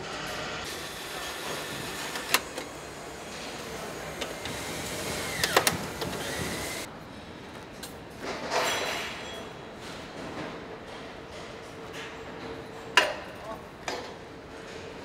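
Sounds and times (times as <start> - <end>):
machinery hum: 0.0 - 6.9.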